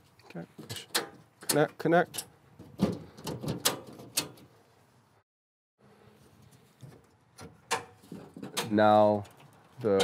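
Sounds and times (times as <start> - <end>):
enclosure door knocks and clicks: 2.6 - 4.5.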